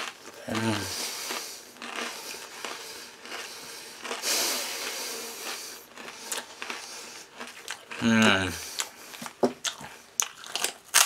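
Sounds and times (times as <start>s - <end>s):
chewing crunchy toffee: 0.0s - 11.0s
hiss: 4.2s - 5.4s.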